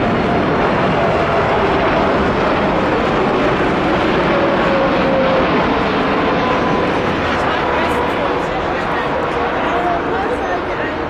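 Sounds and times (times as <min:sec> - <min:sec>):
jet airliner passing close: 0:00.0 - 0:11.0.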